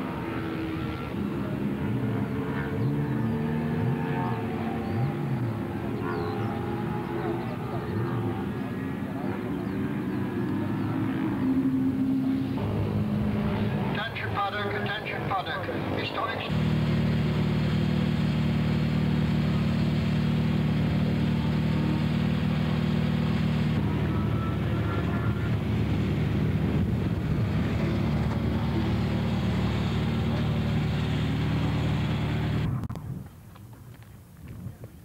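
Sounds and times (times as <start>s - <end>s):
racing car engine running: 0.0s - 32.9s
faint wind noise: 23.7s - 35.0s.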